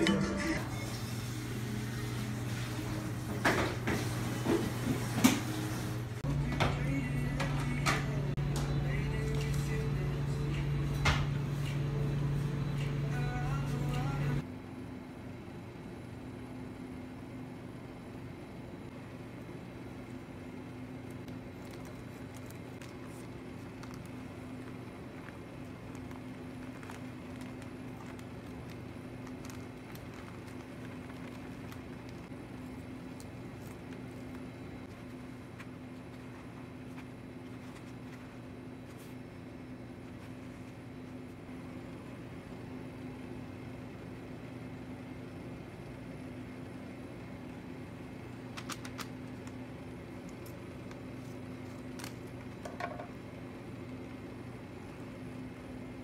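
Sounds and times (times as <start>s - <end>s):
steady low hum: 5.9s - 56.0s
paper packet crinkling: 21.0s - 39.2s, 48.4s - 52.8s.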